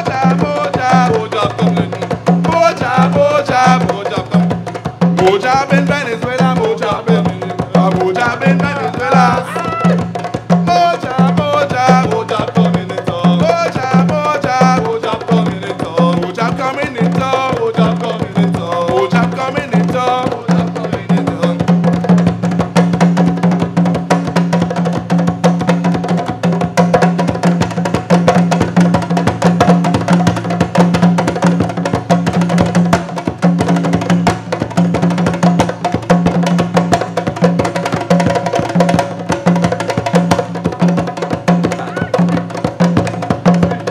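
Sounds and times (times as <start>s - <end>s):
hand drums playing fast rhythm: 0.0s - 43.9s
voices singing: 6.4s - 10.1s, 41.7s - 42.4s.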